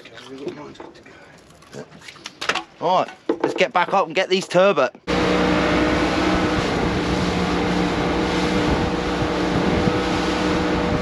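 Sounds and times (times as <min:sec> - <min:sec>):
boat engine running: 0:05.1 - 0:11.0
wake water rushing: 0:05.1 - 0:11.0.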